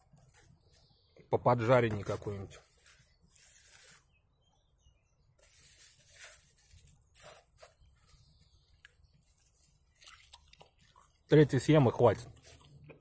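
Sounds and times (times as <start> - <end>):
pastries rustling and crackling: 1.9 - 4.2, 5.4 - 11.3.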